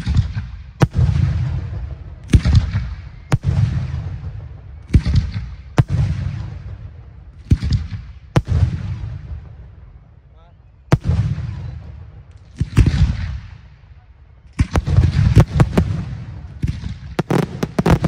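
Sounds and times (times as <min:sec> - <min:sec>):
firework shells bursting: 0:14.6 - 0:18.0
rumbling echo: 0:14.7 - 0:18.0.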